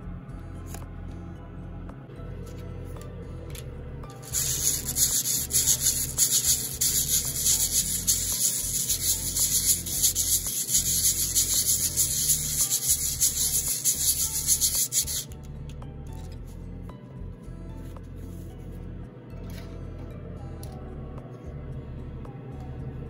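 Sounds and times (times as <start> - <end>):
metal rubbed on sandpaper: 4.2 - 15.3.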